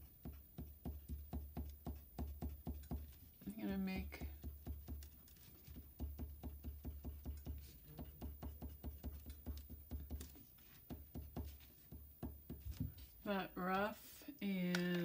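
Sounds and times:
pencil strokes on paper: 0.0s - 13.4s.

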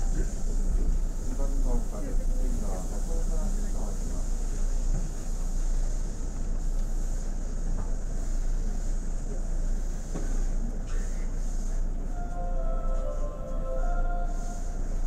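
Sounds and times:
faint passenger voices: 0.0s - 15.0s
train equipment hum: 11.7s - 15.0s
short tune of held notes: 12.1s - 15.0s.

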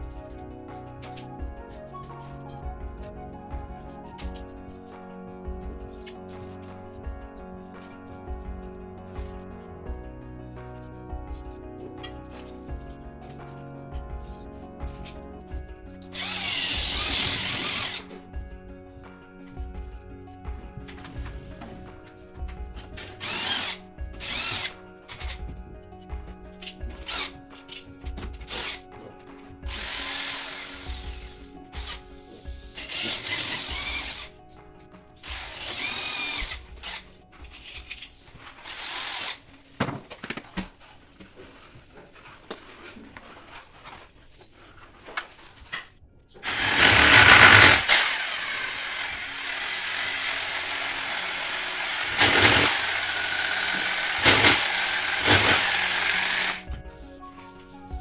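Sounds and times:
faint background music: 0.0s - 58.0s
power drill running: 16.1s - 18.2s, 23.0s - 25.4s, 26.9s - 27.4s, 28.5s - 28.8s, 29.6s - 32.0s, 32.7s - 34.3s, 35.2s - 37.1s, 38.6s - 39.4s, 46.4s - 56.7s.

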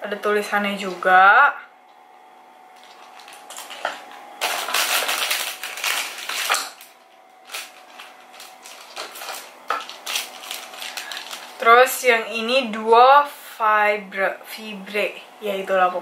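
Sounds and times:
plastic wrapping crinkling: 2.8s - 11.6s.

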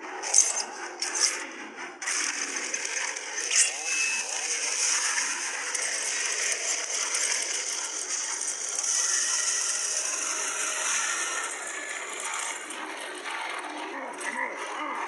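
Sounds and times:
chainsaw running: 4.2s - 12.8s.

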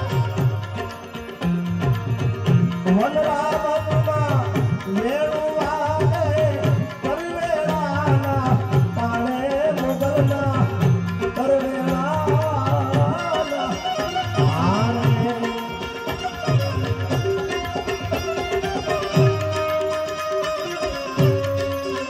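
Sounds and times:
harmonium: 0.0s - 22.0s
tabla drumming: 0.0s - 22.0s
man singing: 2.6s - 16.9s.

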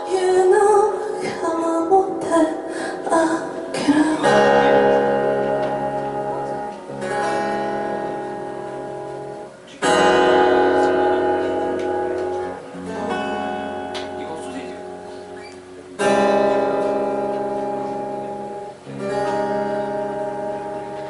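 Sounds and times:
woman singing: 0.0s - 4.8s
acoustic guitar strummed chords: 0.0s - 21.0s.

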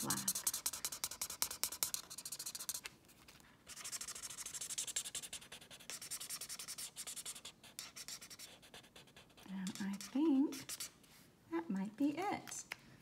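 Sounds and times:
marker scratching on paper: 0.0s - 2.9s, 3.7s - 11.0s.

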